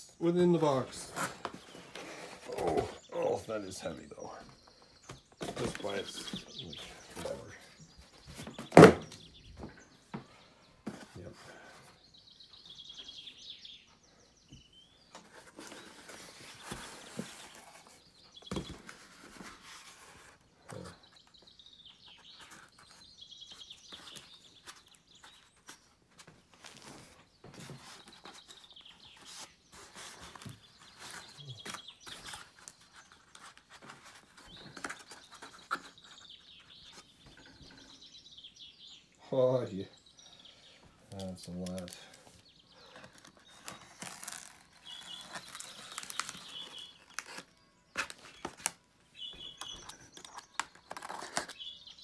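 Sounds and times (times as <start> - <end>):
birds chirping: 0.0 - 52.0
cardboard box scrapes and rustles: 1.1 - 3.0.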